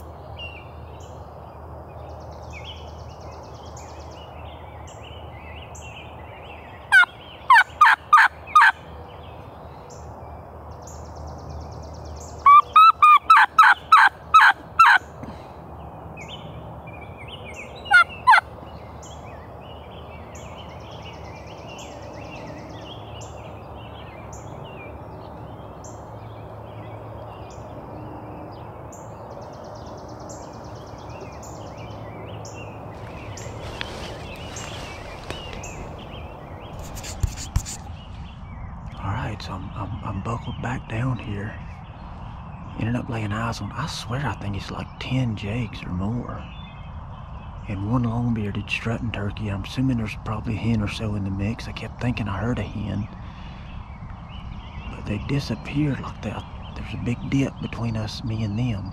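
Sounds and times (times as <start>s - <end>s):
turkey call yelps: 6.9s - 8.8s, 12.4s - 15.0s, 17.9s - 18.5s.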